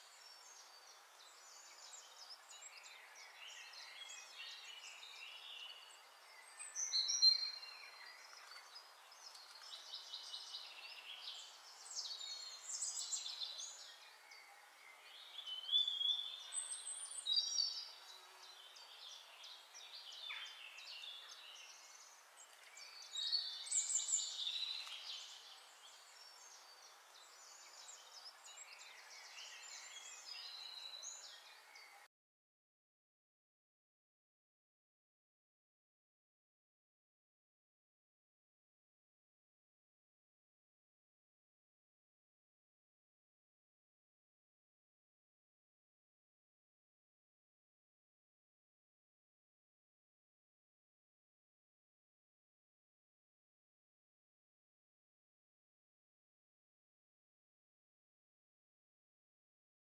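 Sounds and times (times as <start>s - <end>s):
faint steady hiss: 0.0s - 32.1s.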